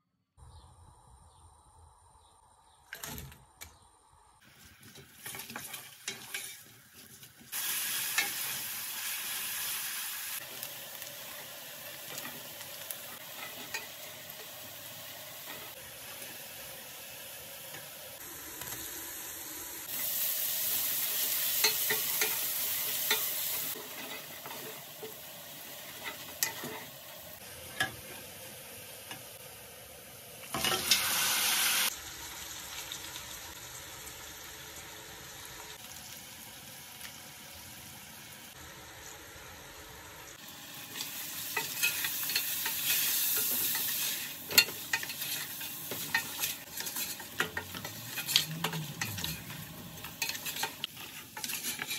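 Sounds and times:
onions sizzling in oil: 0:04.4 - 0:51.9
wooden spoon scraping pot: 0:04.8 - 0:07.4, 0:41.6 - 0:51.9.

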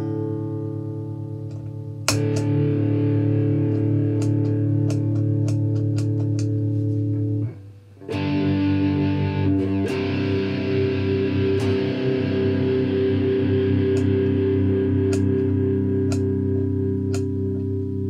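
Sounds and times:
distorted electric guitar chords: 0:00.0 - 0:18.0
footswitch click: 0:02.1 - 0:02.6, 0:03.7 - 0:06.6, 0:13.9 - 0:14.3, 0:15.0 - 0:16.3, 0:17.1 - 0:17.3.

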